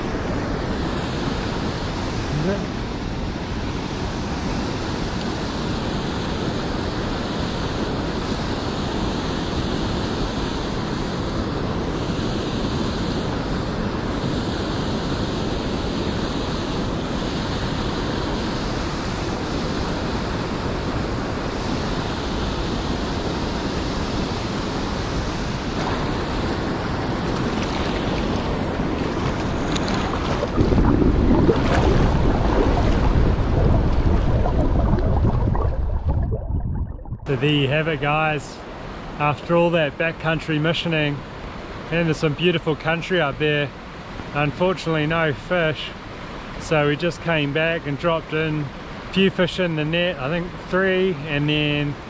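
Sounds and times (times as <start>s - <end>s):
wind buffeting microphone: 25.2s - 37.5s
river water running over gravel: 25.7s - 36.4s.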